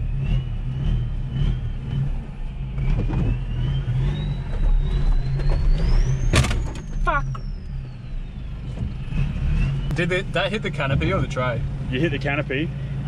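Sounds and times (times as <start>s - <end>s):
engine whine rising in pitch: 0.0s - 13.0s
vehicle striking a tree: 4.4s - 7.1s.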